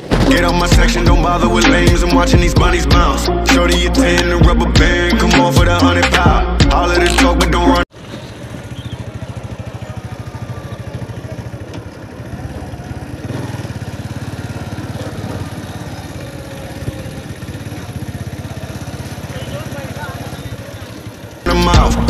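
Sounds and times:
motorcycle engine running: 7.9s - 22.0s.

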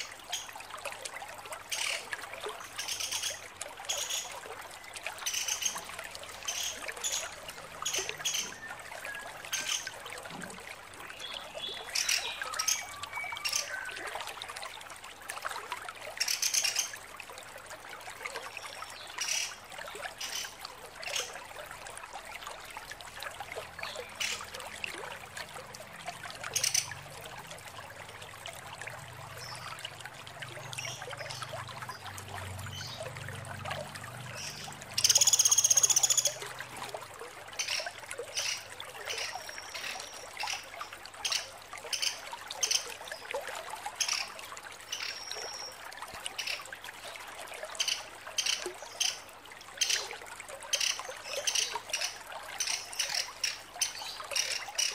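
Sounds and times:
steady trickling hiss: 0.0s - 54.9s
woodpecker calling: 34.4s - 36.4s, 41.2s - 42.8s.

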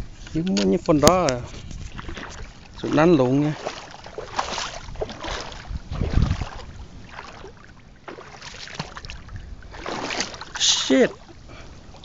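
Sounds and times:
fingertip scraping on microphone: 0.2s - 2.6s.

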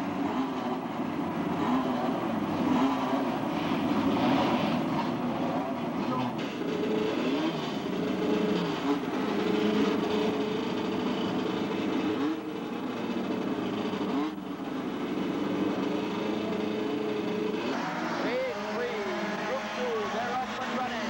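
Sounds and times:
race car engines idling and revving: 0.0s - 21.0s.

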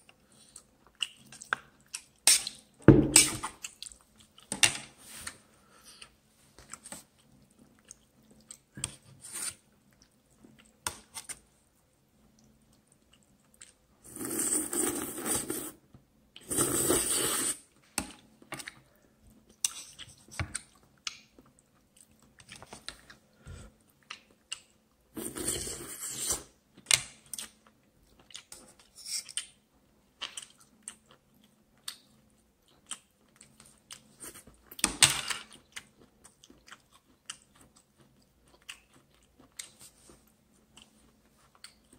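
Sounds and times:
person chewing: 5.7s - 11.4s, 35.4s - 41.9s
loud noodle slurps: 14.0s - 15.8s, 16.4s - 17.7s.

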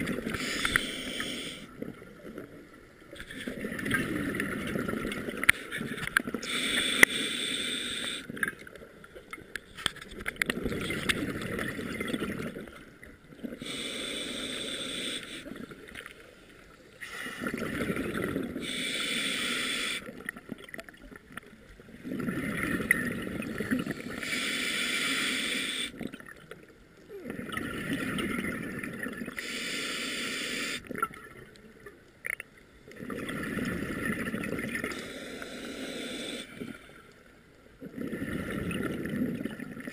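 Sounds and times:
diver breathing through regulator: 0.3s - 1.7s, 6.4s - 8.3s, 13.6s - 15.5s, 18.6s - 20.1s, 23.4s - 26.0s, 29.4s - 30.9s, 34.8s - 37.0s.

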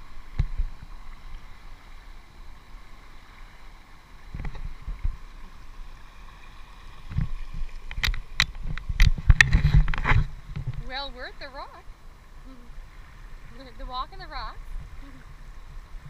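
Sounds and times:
water thumps against camera: 0.0s - 0.9s, 4.3s - 5.3s, 7.0s - 11.1s
water rushing over rocks: 0.0s - 16.0s.

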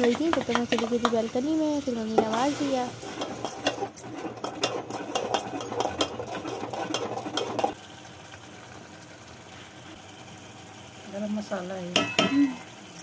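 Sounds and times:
spoon scraping metal pot: 0.0s - 1.2s, 2.1s - 7.8s.

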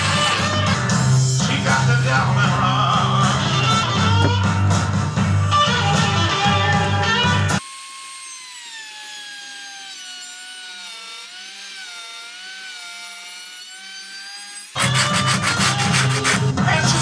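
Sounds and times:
router motor whine cutting wood: 3.4s - 4.7s, 5.5s - 16.4s.

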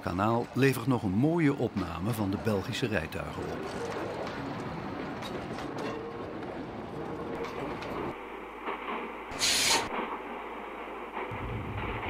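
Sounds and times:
steam tram rumbling: 0.0s - 12.0s
loud hiss of escaping steam: 9.3s - 10.0s.

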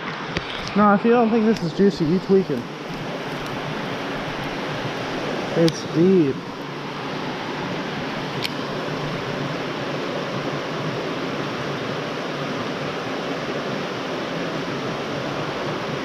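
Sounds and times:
water rushing over stones: 0.0s - 16.0s.

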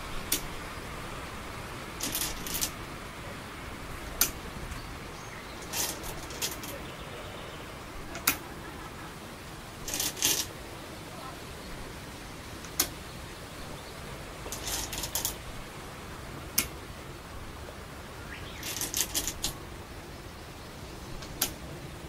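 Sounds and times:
stones rattling in a bowl: 9.9s - 10.5s.

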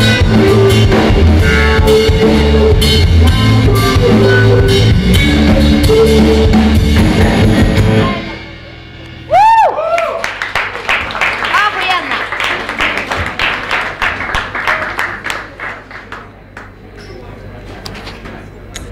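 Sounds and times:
live rock band: 0.0s - 9.4s.

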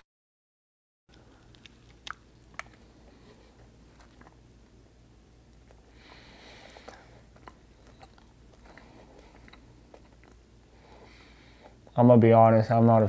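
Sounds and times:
chewing: 1.1s - 4.8s, 5.5s - 11.9s.

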